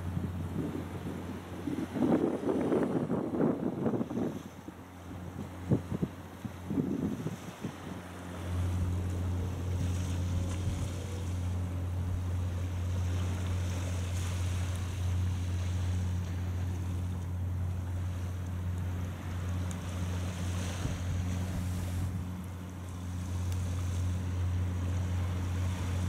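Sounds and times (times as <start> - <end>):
wind on microphone: 0.0 - 11.7, 20.4 - 22.3
boat engine drone: 0.0 - 26.0.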